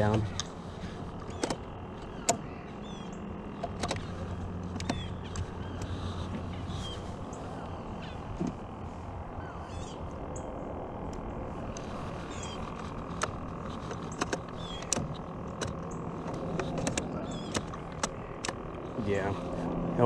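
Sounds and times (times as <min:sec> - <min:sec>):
sharp clicks: 0:00.0 - 0:06.6, 0:11.0 - 0:19.0
birds chirping: 0:00.0 - 0:20.0
faint steady hum: 0:00.0 - 0:20.0
steady outdoor noise: 0:00.0 - 0:20.0.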